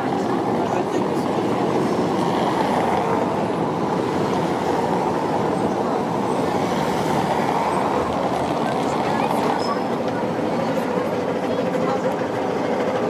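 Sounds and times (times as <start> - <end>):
tram running on rails: 0.0 - 13.0.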